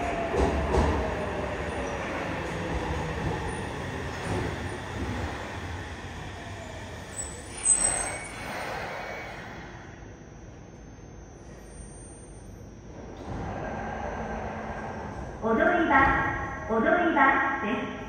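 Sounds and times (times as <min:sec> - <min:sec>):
air brakes hissing: 0:07.2 - 0:09.8.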